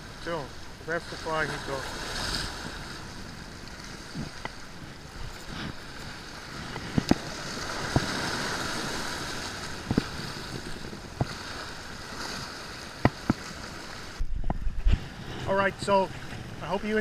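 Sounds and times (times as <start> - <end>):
waves breaking against rocks: 0.0 - 17.0.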